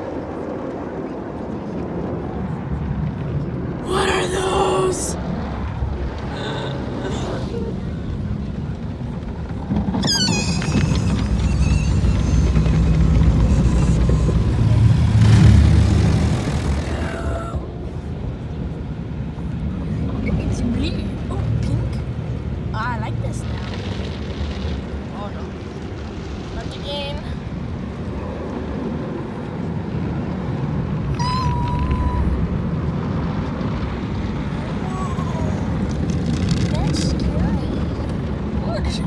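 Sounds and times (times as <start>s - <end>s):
car wash rumble: 0.0s - 39.0s
high-pitched squeal: 10.0s - 15.4s.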